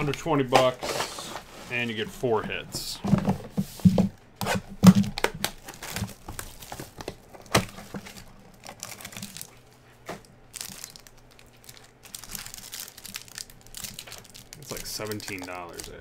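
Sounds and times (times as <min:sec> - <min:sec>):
plastic wrapping crinkling: 0:04.8 - 0:16.0.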